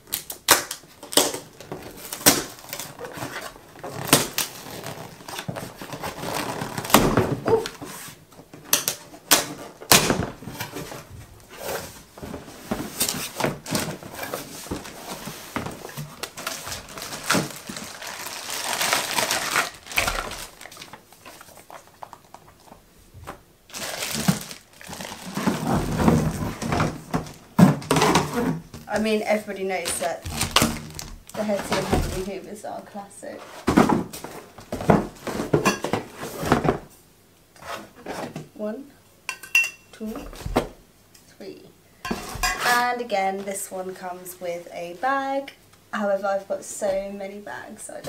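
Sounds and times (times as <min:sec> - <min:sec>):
plastic wrap crinkling: 0:00.0 - 0:07.9, 0:11.9 - 0:22.9, 0:23.7 - 0:28.1, 0:28.8 - 0:32.5.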